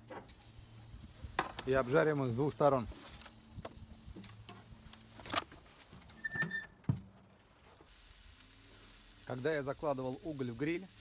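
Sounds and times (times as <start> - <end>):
grill lid squeak: 6.1 - 6.8.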